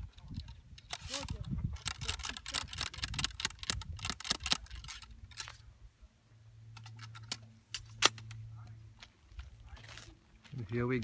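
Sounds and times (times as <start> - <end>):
ramrod clicking and scraping in barrel: 0.0 - 5.6
low steady hum: 2.8 - 11.0.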